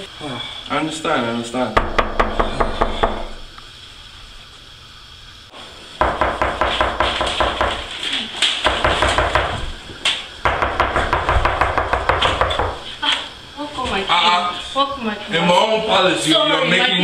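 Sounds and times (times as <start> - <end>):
rapid loud banging: 1.8 - 3.6, 6.0 - 8.0, 8.6 - 9.8, 10.4 - 12.8.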